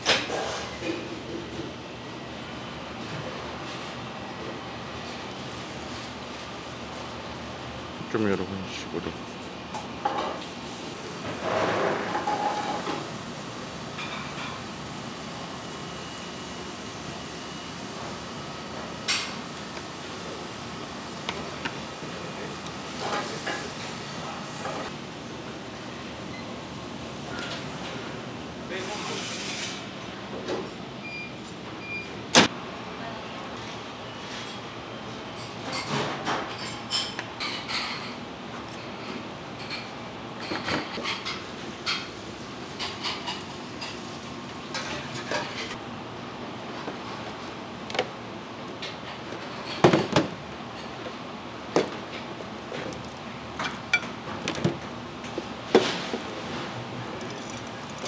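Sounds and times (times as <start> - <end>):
steady background noise: 0.0 - 58.0
kitchen background noise: 9.0 - 45.8, 46.6 - 58.0
metal utensils clinking on dishes: 57.2 - 58.0.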